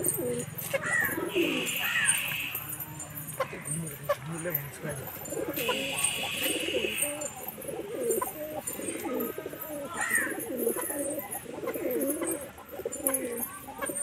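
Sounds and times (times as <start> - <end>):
pigeons cooing: 0.0 - 14.0
short higher bird call: 5.6 - 7.3.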